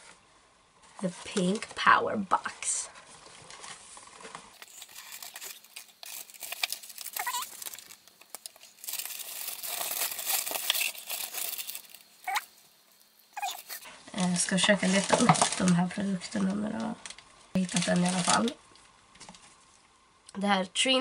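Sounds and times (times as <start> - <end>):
paper packaging crinkling: 3.0 - 19.8
paper tearing: 4.6 - 12.4.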